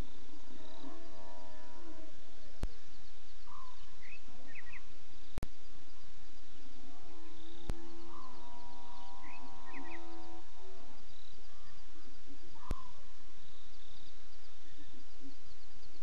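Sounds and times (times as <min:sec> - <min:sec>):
long animal bellow: 0:00.0 - 0:02.4, 0:06.8 - 0:11.8
birds chirping: 0:00.0 - 0:16.0
night insects: 0:00.0 - 0:16.0.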